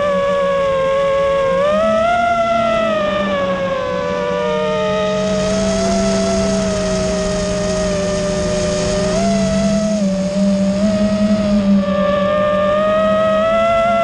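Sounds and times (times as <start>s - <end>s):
drone propellers whining: 0.0s - 14.0s
steady low hum: 0.0s - 14.0s.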